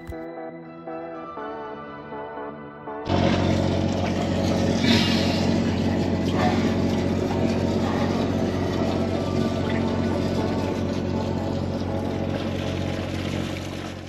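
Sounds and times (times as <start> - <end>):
faint ambient music: 0.0 - 13.4
low mechanical hum: 3.1 - 14.0
water sloshing: 3.2 - 14.0.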